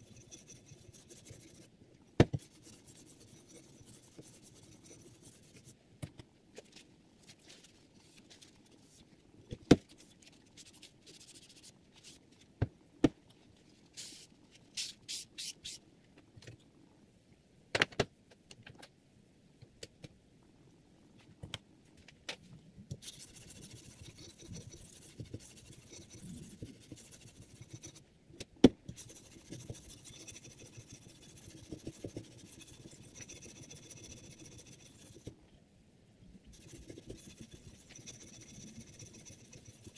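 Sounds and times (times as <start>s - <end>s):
stone scraping knife blade: 29.0s - 35.2s, 36.6s - 39.9s.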